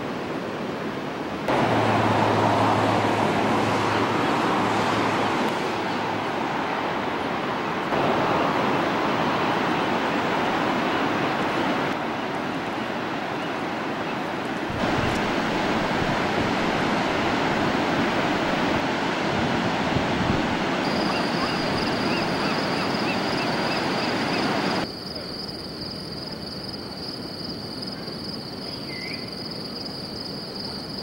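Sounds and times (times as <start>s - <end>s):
ocean surf breaking: 0.0s - 24.8s
high insect trill: 20.8s - 31.0s.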